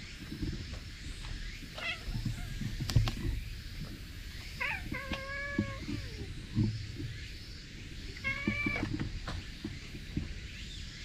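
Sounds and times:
cat meowing: 1.8 - 2.6, 4.6 - 6.3, 8.1 - 9.0
cat warbling call: 1.8 - 2.6, 4.6 - 6.3, 8.2 - 8.9.

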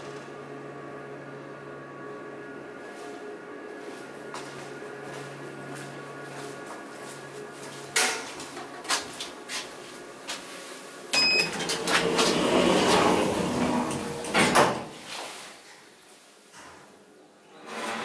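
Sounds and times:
short beep: 11.2 - 11.6
sliding doors closing: 11.2 - 15.2, 17.5 - 18.0
door clunk: 11.5 - 14.9.

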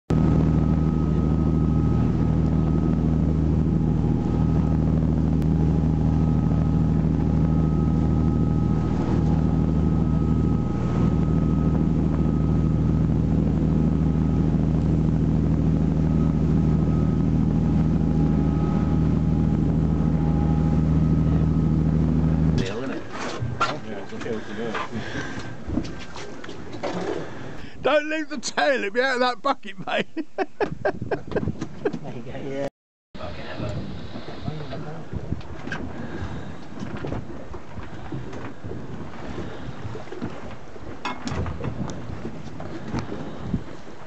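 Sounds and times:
rush of boat wake: 0.1 - 27.8, 33.2 - 44.0
faint high whine: 0.1 - 28.8
boat engine droning: 0.1 - 29.5, 33.2 - 44.0.

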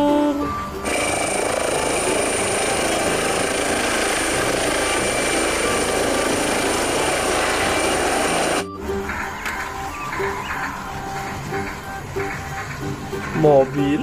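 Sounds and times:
helicopter rotor and turbine: 0.8 - 8.6
high steady whine: 0.8 - 13.1.

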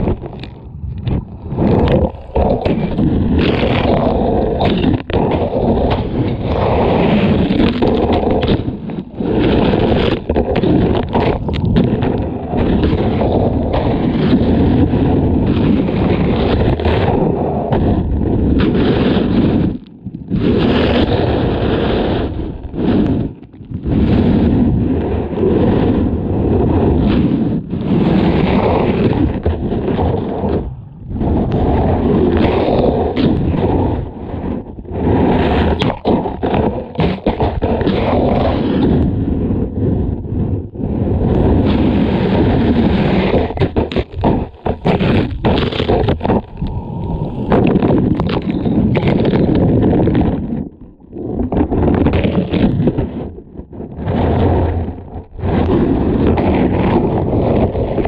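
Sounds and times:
camera scraping against rocks: 0.0 - 14.9, 41.3 - 53.2
surf rushing and churning: 0.0 - 17.2, 28.4 - 39.2, 40.8 - 53.3.

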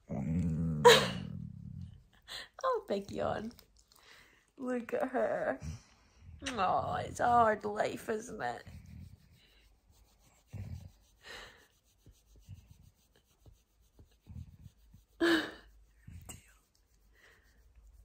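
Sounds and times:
hand rubbing dog's coat: 8.6 - 15.2.

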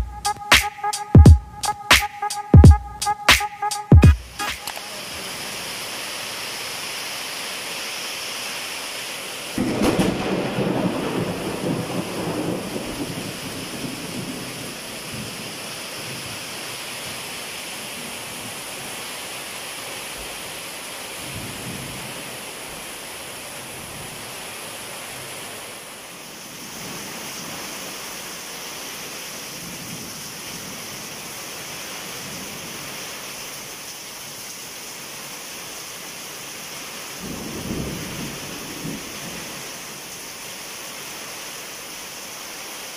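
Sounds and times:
heavy rain on concrete: 4.2 - 42.9
runoff streaming off roof: 4.7 - 17.4
thunder clap rumbling: 9.6 - 14.8.

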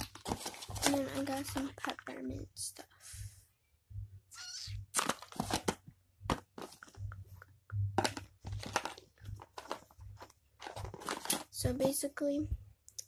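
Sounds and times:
packaging crinkling and rustling: 0.0 - 2.2, 4.9 - 7.0, 8.0 - 11.9.

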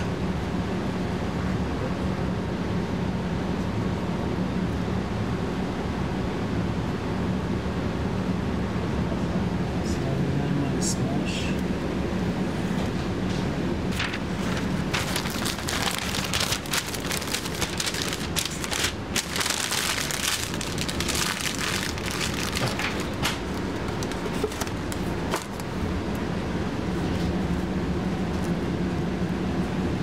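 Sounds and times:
low hum: 14.0 - 22.8.

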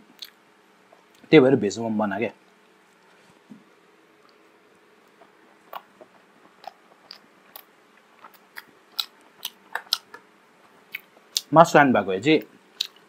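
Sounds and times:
chewing mouth clicks and smacks: 0.2 - 1.3, 5.0 - 11.5, 12.8 - 13.0.

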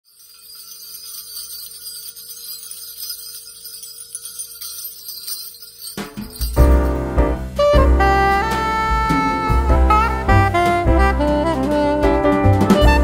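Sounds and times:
small bells shimmering: 0.0 - 7.2.

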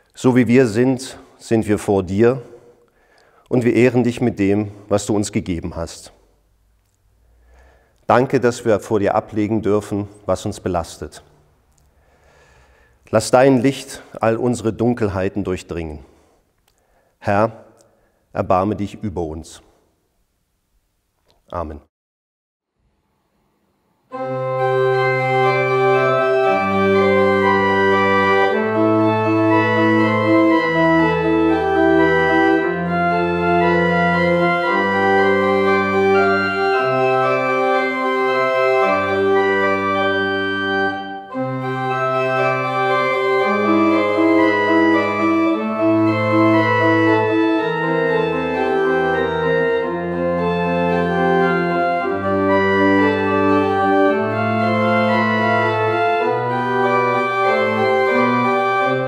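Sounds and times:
pipe organ playing: 0.0 - 2.7, 3.5 - 6.1, 8.0 - 11.3, 12.7 - 15.8, 24.1 - 59.0.

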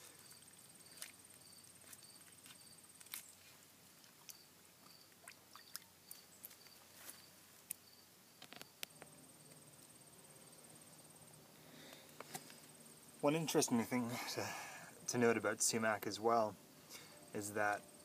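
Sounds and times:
clicks and rustles of dry leaves: 0.0 - 4.4
high insect trill: 0.0 - 18.0.

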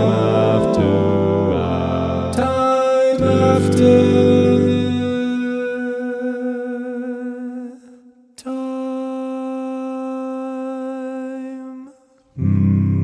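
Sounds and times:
man humming a held note: 0.0 - 5.9
lower voices singing a chord: 0.0 - 7.0.

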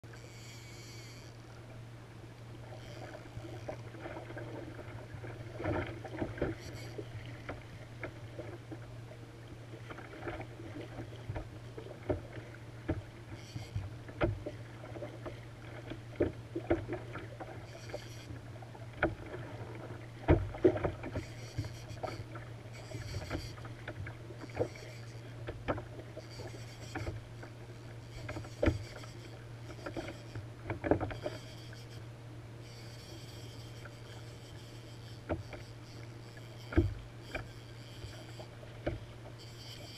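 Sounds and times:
steady low hum: 0.0 - 39.9
knocks and taps from kayak: 10.0 - 13.1, 14.1 - 14.6, 15.8 - 17.3, 18.9 - 19.4, 20.2 - 22.4, 25.4 - 26.0, 29.8 - 31.3, 36.7 - 38.2, 38.8 - 39.0
water slapping against kayak hull: 18.9 - 21.3.

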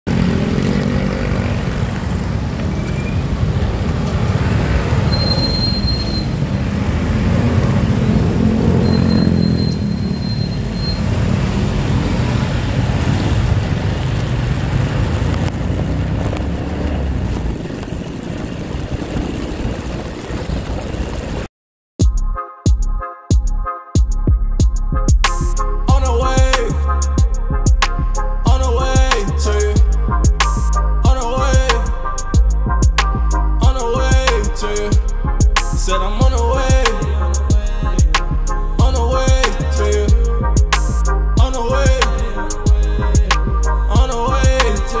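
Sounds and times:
traffic engine rumble: 0.1 - 21.5, 25.0 - 45.0
tyres on wet road: 0.1 - 21.5
high-pitched squeals: 5.0 - 6.6, 8.6 - 11.2.

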